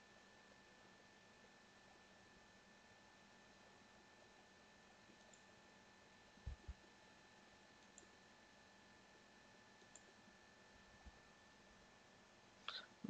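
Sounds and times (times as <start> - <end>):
faint high-pitched hum: 0.0 - 13.0
computer mouse clicks: 5.1 - 5.5, 7.8 - 8.1, 9.8 - 10.1.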